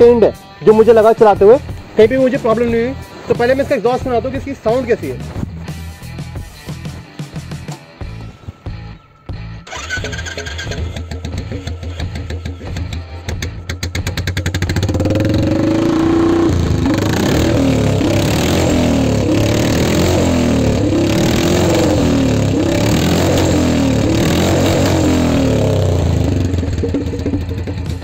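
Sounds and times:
motorcycle engine revving: 9.6 - 28.0.

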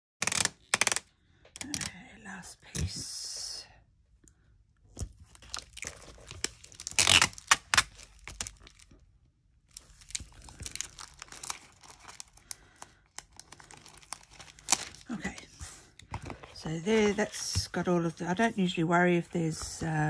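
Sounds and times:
sticky tape and plastic crackling: 0.2 - 1.9, 5.0 - 9.0, 9.7 - 16.1.

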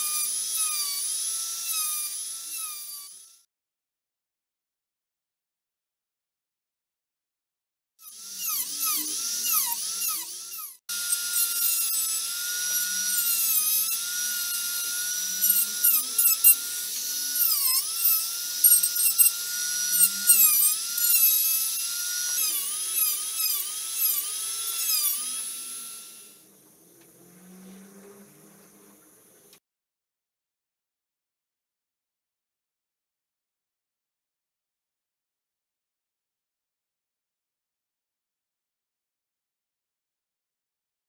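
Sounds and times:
rotary tool whining: 0.0 - 3.5, 8.0 - 29.6.

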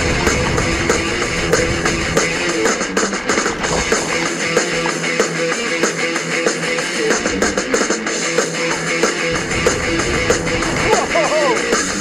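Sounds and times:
deep bass part: 0.0 - 5.6, 9.3 - 12.0
background music with steady beat: 0.0 - 12.0.

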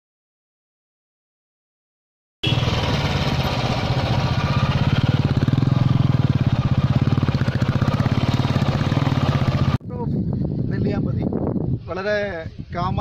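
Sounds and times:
motorcycle engine running: 2.4 - 9.8.

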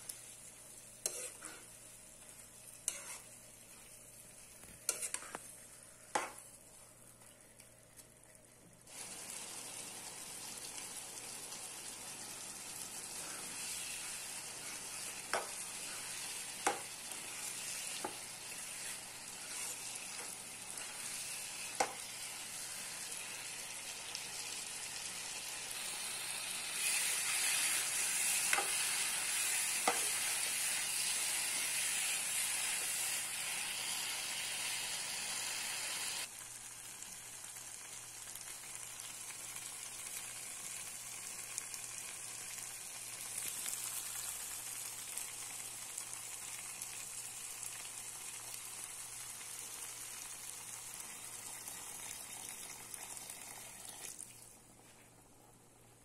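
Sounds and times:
chicken sizzling in a frying pan: 0.0 - 54.7
metal spoon stirring: 2.8 - 3.3.

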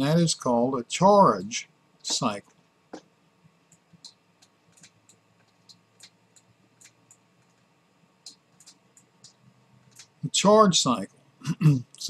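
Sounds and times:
stylus tapping on tablet: 2.9 - 3.1.

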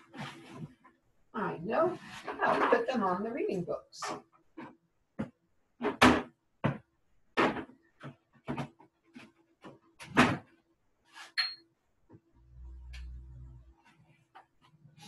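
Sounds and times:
low hum: 12.4 - 13.7.

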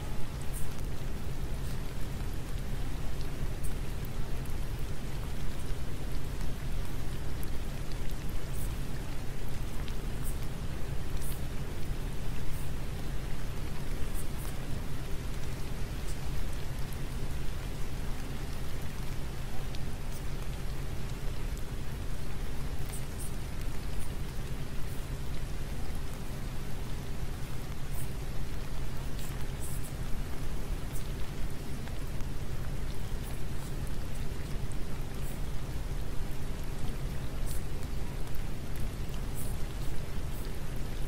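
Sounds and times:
steady rain hiss: 0.0 - 41.0.

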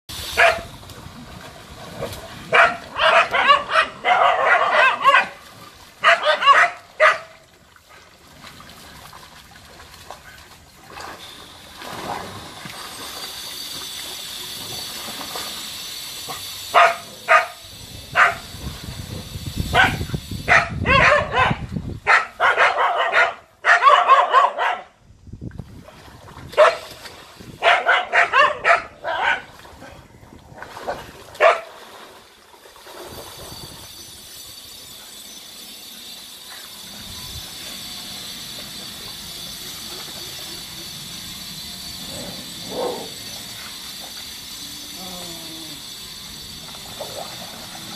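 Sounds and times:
dogs barking: 0.4 - 0.7, 2.5 - 5.4, 6.0 - 7.4, 16.7 - 18.4, 19.7 - 24.9, 26.6 - 26.8, 27.6 - 29.5, 31.4 - 31.7.

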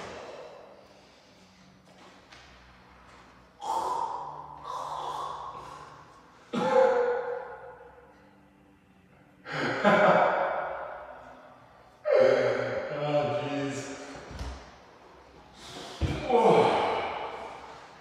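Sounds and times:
man breathing heavily: 0.0 - 1.9, 3.6 - 7.8.

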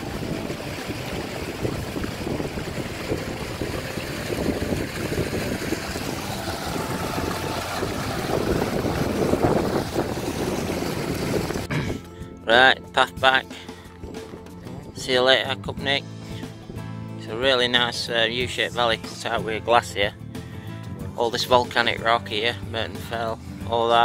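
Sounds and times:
stream running over rocks: 0.0 - 11.7
wind noise on microphone: 0.0 - 12.0, 13.9 - 16.8.

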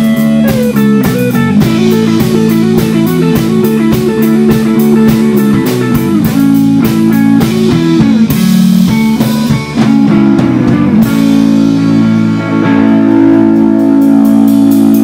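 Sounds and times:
rock band playing: 0.0 - 15.0.

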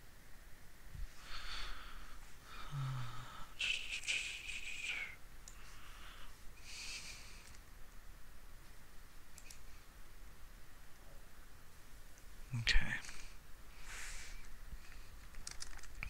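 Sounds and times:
low voice hum: 1.0 - 7.5
person breathing: 1.0 - 7.6, 13.0 - 15.2
faint clicks: 3.7 - 5.7, 7.4 - 8.0, 9.3 - 9.7.

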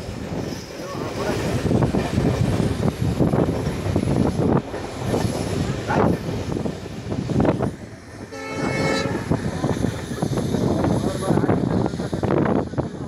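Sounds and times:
train coaches clattering on rails: 0.0 - 13.0
locomotive horn blast: 8.2 - 9.5.

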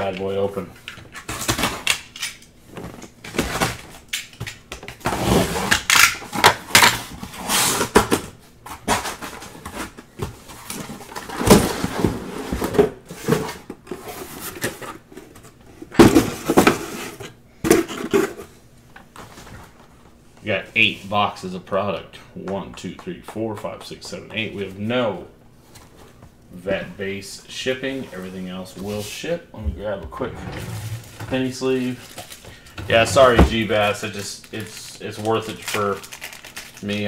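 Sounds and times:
boxes knocking down: 16.0 - 16.9
cardboard tearing and rustling: 35.6 - 36.8.

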